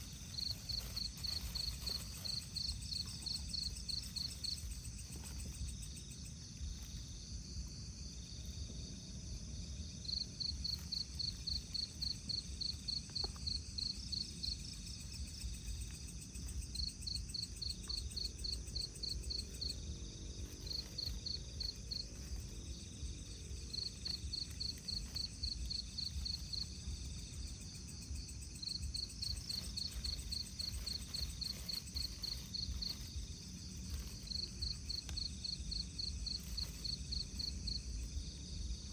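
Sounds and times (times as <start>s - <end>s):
high-pitched insect drone: 0.0s - 7.2s, 13.6s - 38.9s
insect chirping: 0.0s - 38.9s.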